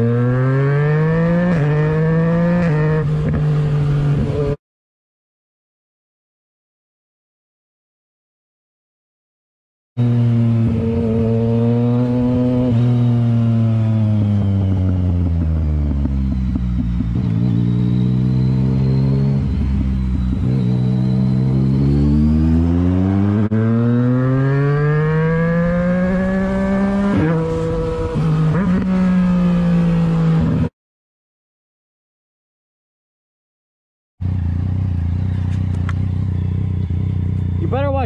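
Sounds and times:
motorcycle engine revving: 0.0s - 4.6s, 10.0s - 30.7s, 34.2s - 38.0s
gear changes: 12.1s - 30.1s.

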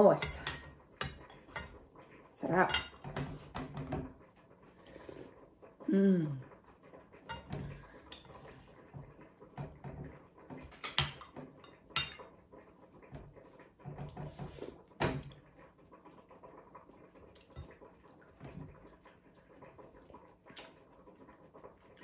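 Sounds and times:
cutlery scraping and clinking on plate: 0.2s - 1.8s, 10.6s - 12.3s
soft chewing: 4.7s - 6.8s, 19.3s - 22.0s.

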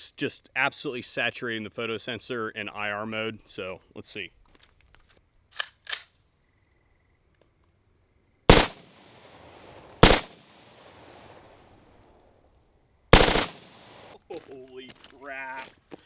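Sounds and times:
automatic rifle fire with echo: 8.5s - 10.8s, 13.1s - 14.1s.

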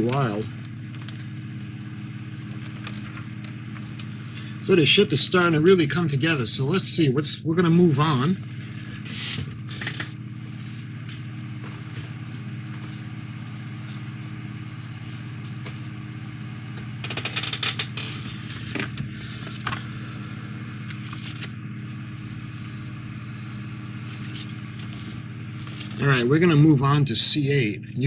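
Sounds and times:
steady low hum: 0.0s - 28.0s
paper pages turning: 2.5s - 4.5s, 8.5s - 14.2s, 20.8s - 21.6s, 24.0s - 26.2s.

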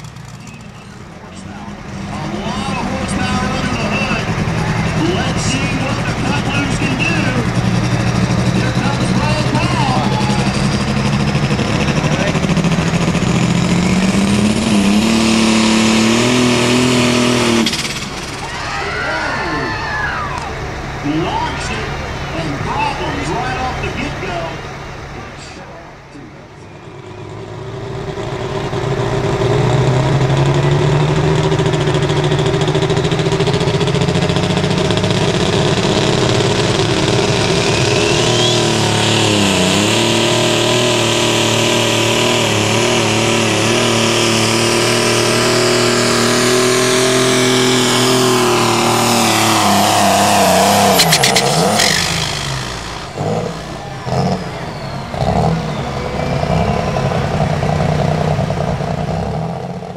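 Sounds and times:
tractor engine revving hard: 0.0s - 59.9s
high whine: 47.2s - 59.1s.

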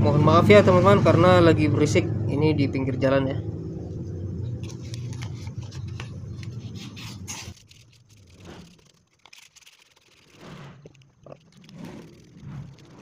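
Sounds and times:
passing vehicle engine rumble: 0.0s - 9.0s
sandpaper scraping on metal shaft: 4.7s - 13.0s.

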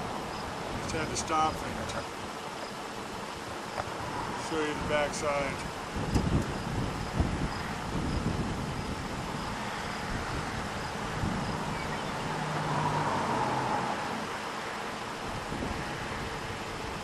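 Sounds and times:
wind noise: 0.0s - 14.4s, 15.2s - 17.0s.

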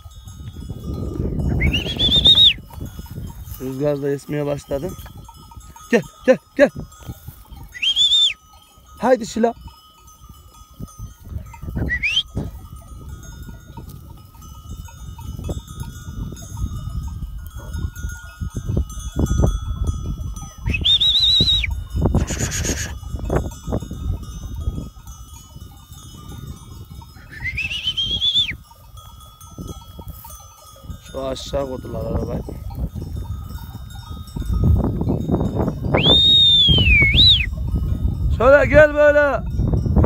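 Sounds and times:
wind rumbling on microphone: 0.0s - 40.0s
sheep calling: 22.2s - 23.0s.

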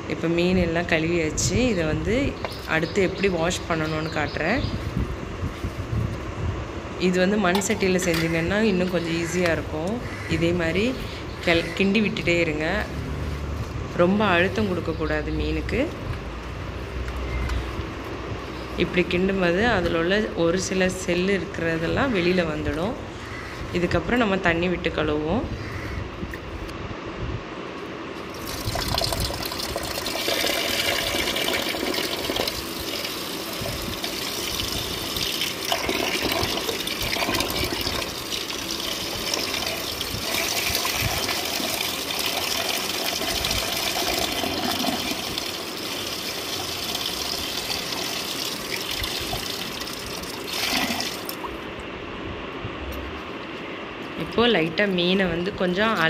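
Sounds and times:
water pouring from pipe: 28.3s - 51.5s.

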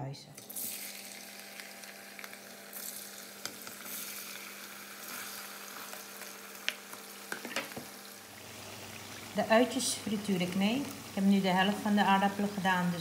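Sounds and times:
potatoes sizzling in hot oil: 0.4s - 13.0s.

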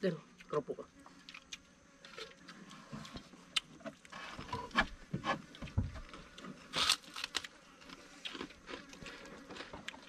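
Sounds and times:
food crunching on metal plates: 6.0s - 10.0s.

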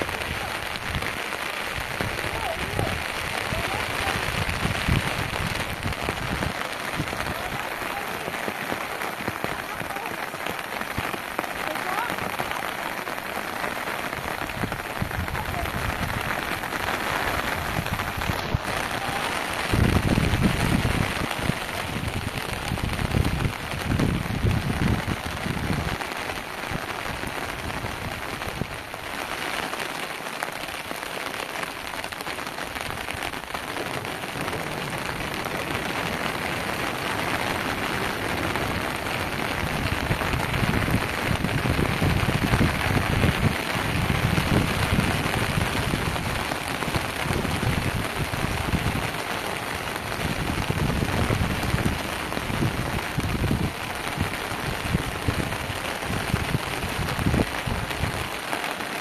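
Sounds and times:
heavy rain hissing: 0.0s - 59.0s.

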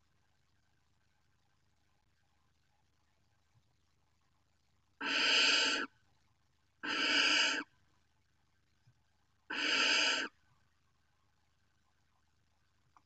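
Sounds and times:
barn owl nestlings hissing calls: 5.0s - 5.9s, 6.8s - 7.7s, 9.5s - 10.3s.

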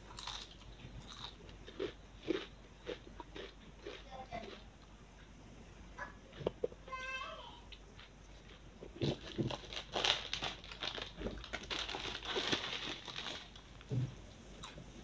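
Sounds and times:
plastic snack packet crinkling: 8.5s - 13.8s.

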